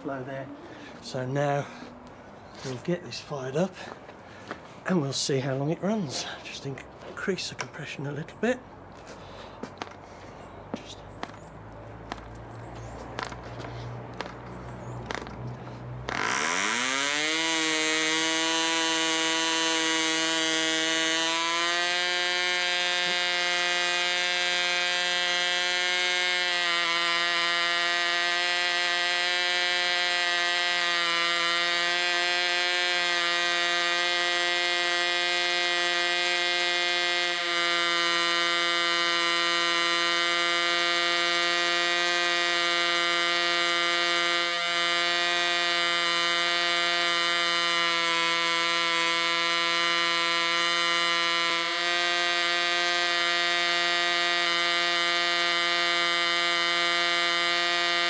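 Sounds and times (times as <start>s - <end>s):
model aircraft engine buzzing: 16.0s - 58.0s.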